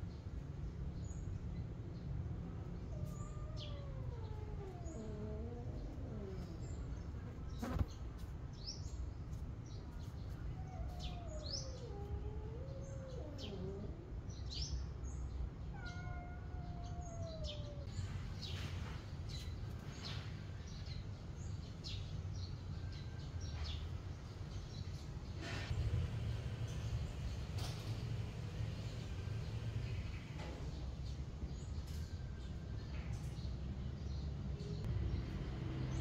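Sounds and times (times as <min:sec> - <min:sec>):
small birds chirping: 0:00.0 - 0:36.0
cat meowing: 0:02.9 - 0:07.0, 0:10.5 - 0:14.1, 0:15.6 - 0:17.9.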